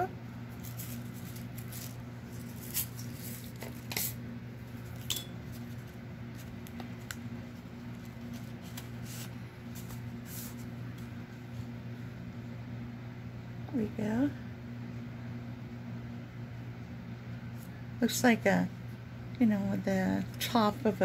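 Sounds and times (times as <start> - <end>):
low electrical hum: 0.0 - 21.0
paper pages rustling: 0.5 - 11.1.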